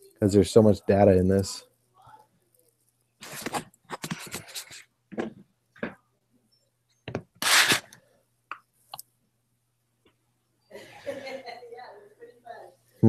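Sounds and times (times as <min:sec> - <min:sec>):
microphone handling knocks and rustles: 0:05.1 - 0:06.0.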